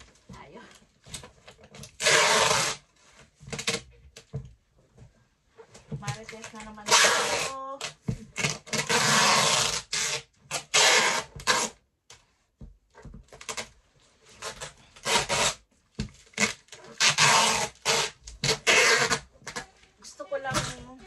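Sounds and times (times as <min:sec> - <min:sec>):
packing tape pulled off roll: 0:01.1 - 0:03.9, 0:06.2 - 0:11.8, 0:13.3 - 0:13.7, 0:14.3 - 0:15.6, 0:16.2 - 0:19.7.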